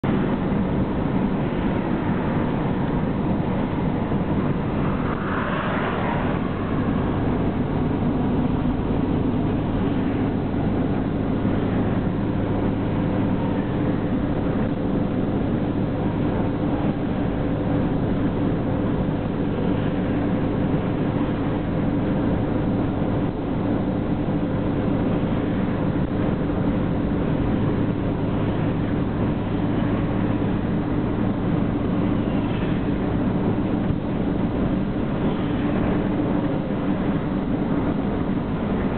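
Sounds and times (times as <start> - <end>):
car road and engine noise: 0.0 - 38.9.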